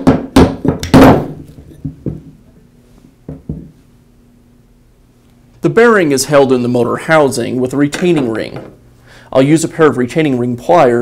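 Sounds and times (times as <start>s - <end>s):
rubber mallet knocking on metal: 0.0s - 2.3s.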